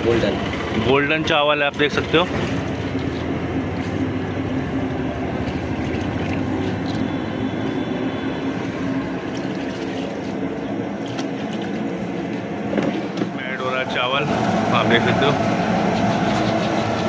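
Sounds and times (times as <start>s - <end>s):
gas burner rushing: 10.4s - 17.0s.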